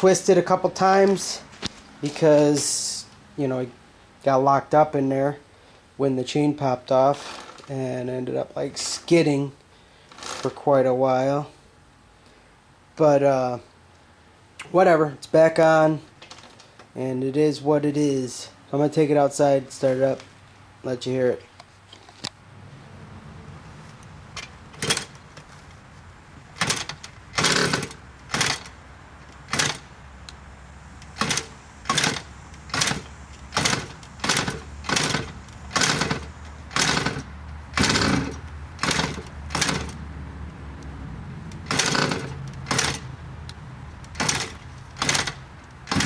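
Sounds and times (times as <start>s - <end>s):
dirt bike engine turning over: 6.9s - 7.8s, 10.1s - 10.7s, 24.3s - 25.8s, 26.4s - 30.0s, 30.9s - 40.2s, 41.5s - 43.2s, 43.9s - 46.0s.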